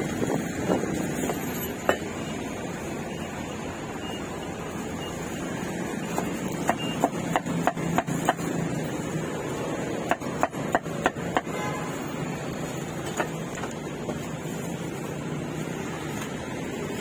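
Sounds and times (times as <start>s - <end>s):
cleaver chopping on wooden block: 6.6s - 8.5s, 10.0s - 11.5s.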